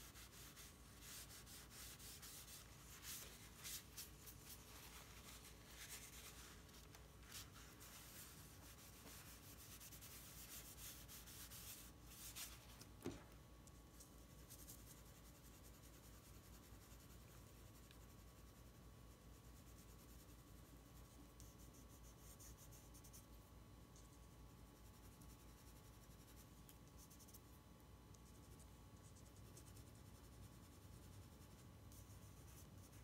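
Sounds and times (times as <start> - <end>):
pencil strokes on paper: 0.0 - 13.2, 24.0 - 33.0
tissue brushing on paper: 0.0 - 13.2.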